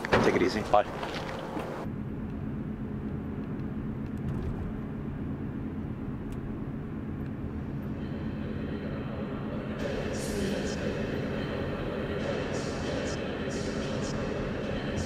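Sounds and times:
car engine rumble inside cabin: 1.0 - 12.2.

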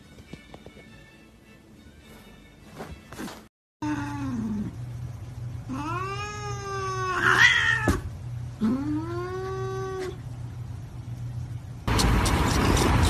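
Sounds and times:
steady low hum: 1.3 - 13.0
cat meowing: 5.7 - 8.0.

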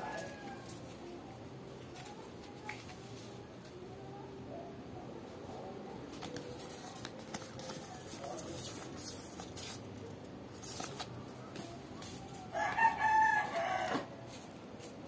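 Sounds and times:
cards rustling and flicking: 6.0 - 12.2.

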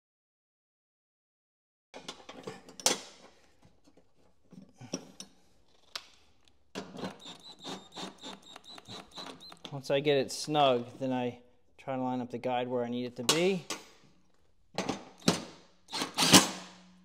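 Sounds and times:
cordless drill whining: 7.0 - 9.7, 15.2 - 16.6.

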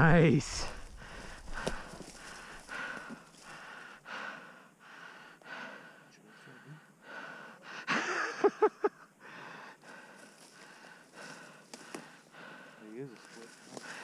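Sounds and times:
person breathing hard: 0.6 - 8.0, 9.2 - 14.0.

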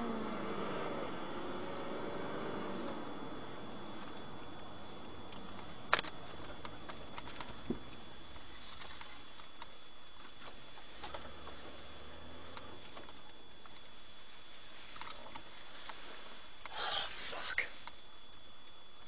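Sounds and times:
car road noise: 0.0 - 18.6
small clicks and ticks: 4.0 - 11.6, 17.6 - 19.0.

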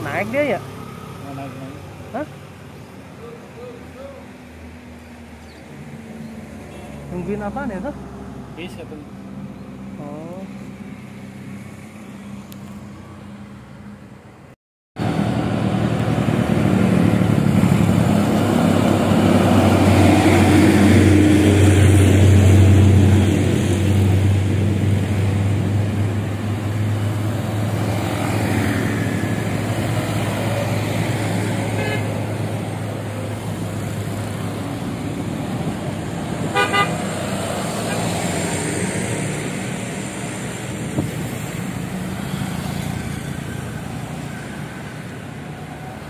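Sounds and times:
road traffic passing: 0.0 - 46.0
car horn toot: 31.8 - 32.1, 36.5 - 37.0.

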